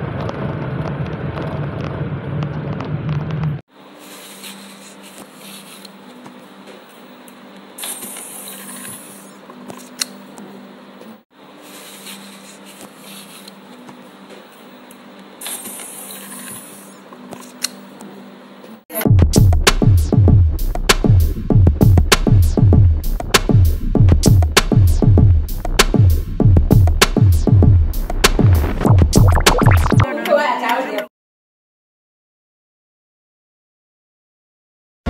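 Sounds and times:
electronic music with strong beat: 0:19.0 - 0:30.1.

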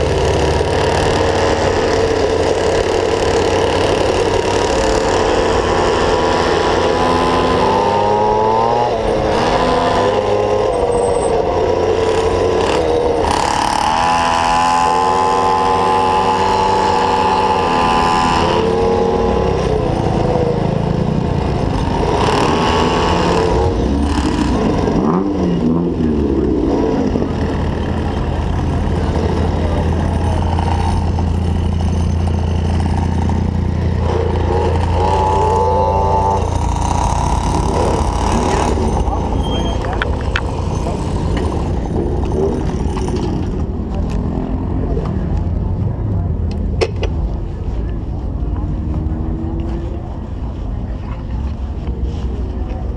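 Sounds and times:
two-stroke scooter engine: 0:00.0 - 0:45.8.

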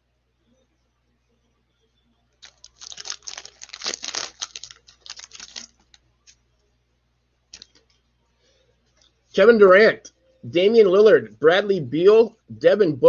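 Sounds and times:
cards rustling and clicking: 0:02.4 - 0:06.0, 0:07.5 - 0:08.0
plastic wrapper crinkling: 0:02.4 - 0:06.4, 0:07.5 - 0:07.9.

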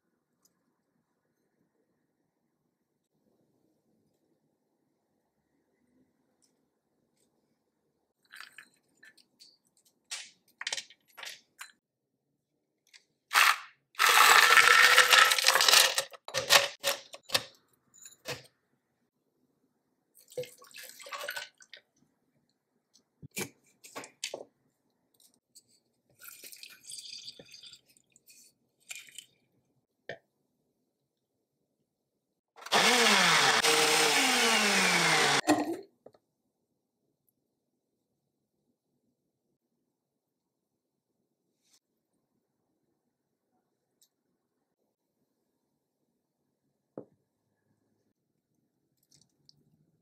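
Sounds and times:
ice cubes clattering into cup: 0:13.3 - 0:17.3
liquid pouring: 0:20.2 - 0:21.8, 0:26.2 - 0:28.2.

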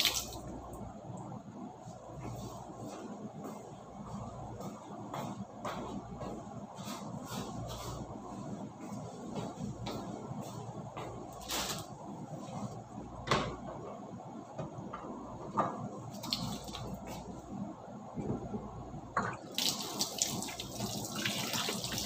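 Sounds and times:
tap water running into sink: 0:19.3 - 0:22.0.

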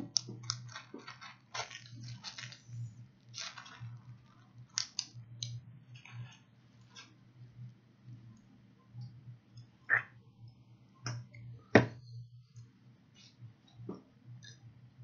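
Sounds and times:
steady low hum: 0:00.0 - 0:15.0
plastic packet crinkling: 0:00.2 - 0:05.2.

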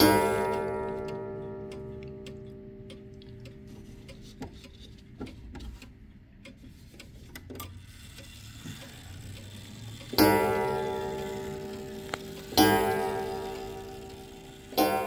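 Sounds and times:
clock gong ringing: 0:00.0 - 0:03.1, 0:08.9 - 0:15.0
pendulum wall clock ticking: 0:00.0 - 0:15.0.

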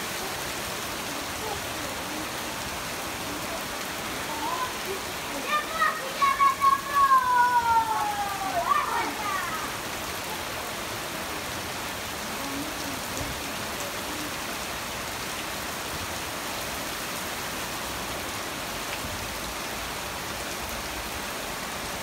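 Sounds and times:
rain falling on wet street: 0:00.0 - 0:22.0.

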